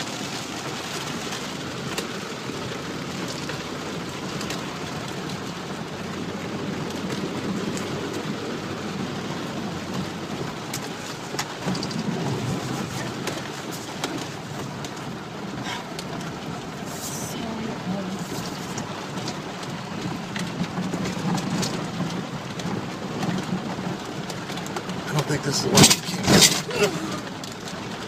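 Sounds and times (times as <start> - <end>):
low rumble of tyres and engine: 0.0 - 28.0
rattles: 25.5 - 27.6.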